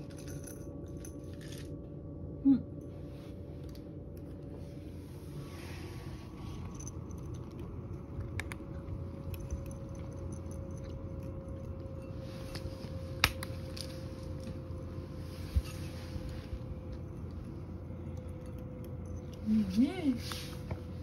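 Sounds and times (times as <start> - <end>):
steady low hum: 0.0 - 21.0
cat chewing: 6.3 - 13.1.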